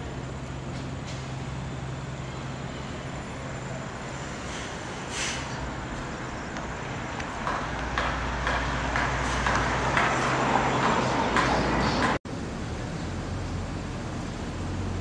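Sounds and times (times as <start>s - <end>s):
steady hiss: 0.0s - 8.4s
traffic rumble: 0.0s - 15.0s.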